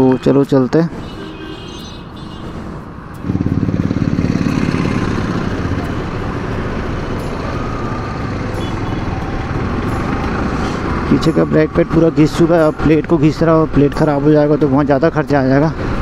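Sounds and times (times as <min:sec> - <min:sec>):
motorcycle engine pulling away: 0:03.2 - 0:08.5.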